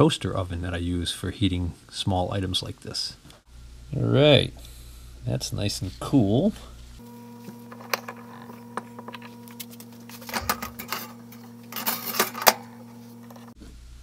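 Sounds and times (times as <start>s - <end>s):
steady electrical hum: 0.0s - 14.0s
small metal parts clinking: 7.7s - 13.6s.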